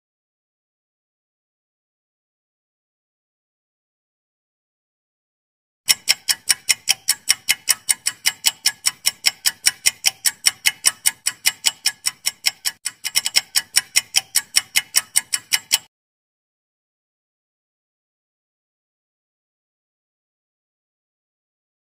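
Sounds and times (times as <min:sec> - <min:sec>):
fast clock-like timer ticks: 0:05.9 - 0:15.9.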